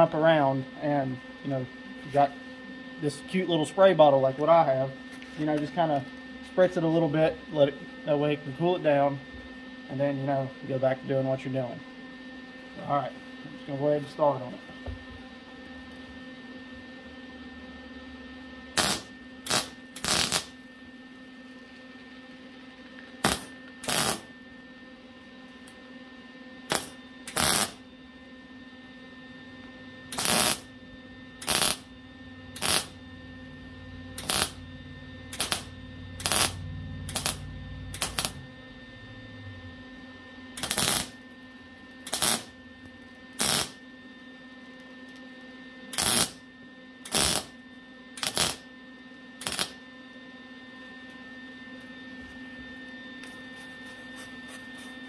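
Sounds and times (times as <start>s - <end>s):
steady low hum: 0.0s - 55.0s
tack welding bursts: 18.8s - 20.6s, 23.2s - 24.3s, 26.7s - 27.8s, 30.1s - 30.7s, 31.4s - 31.9s, 32.6s - 33.0s, 34.2s - 34.6s, 35.3s - 38.4s, 40.6s - 41.2s, 42.0s - 42.6s, 43.4s - 43.8s, 45.9s - 46.4s, 47.0s - 47.6s, 48.2s - 48.7s, 49.4s - 49.8s.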